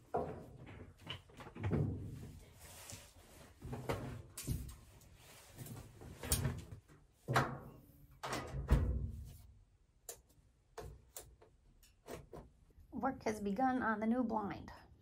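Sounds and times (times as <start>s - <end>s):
knocks and clunks of handling: 0.0s - 2.4s.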